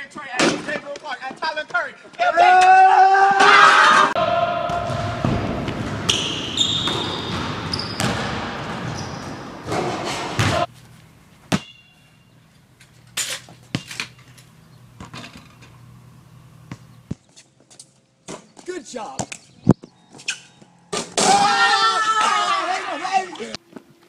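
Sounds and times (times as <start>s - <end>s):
basketball striking hard surfaces: 4.5s - 10.7s, 11.4s - 12.0s, 16.6s - 17.2s
basketball bouncing in gym: 4.6s - 10.7s, 11.5s - 11.9s, 16.6s - 17.2s.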